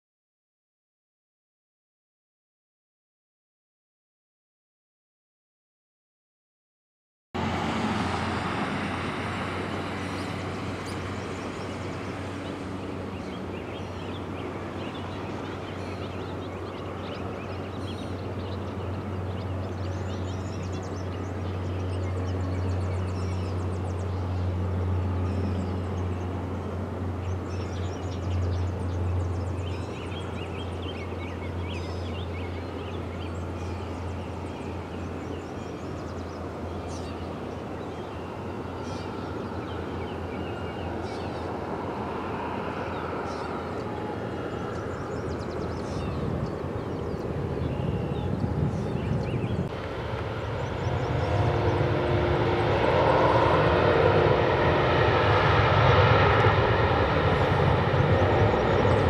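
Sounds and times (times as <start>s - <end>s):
steady low drone: 7.4s - 59.0s
small birds chirping: 10.0s - 41.6s, 42.8s - 51.9s.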